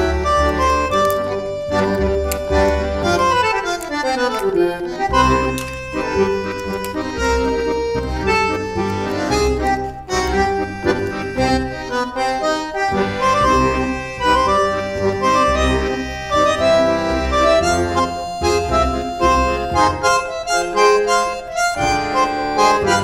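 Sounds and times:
instrumental music with pulsing bass: 0.0 - 23.0.

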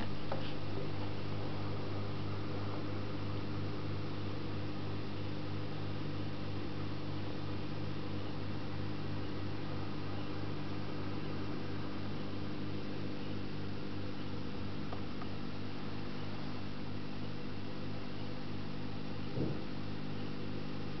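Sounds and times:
aquarium equipment humming: 0.0 - 21.0.

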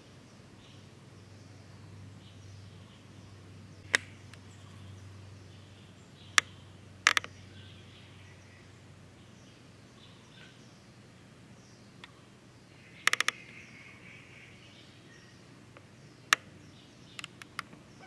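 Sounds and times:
faint bird chirps: 0.0 - 18.0
steady low hum: 0.0 - 18.0
sharp clicks: 3.8 - 4.4, 6.4 - 7.3, 13.0 - 13.6, 15.8 - 16.5, 17.2 - 17.8.

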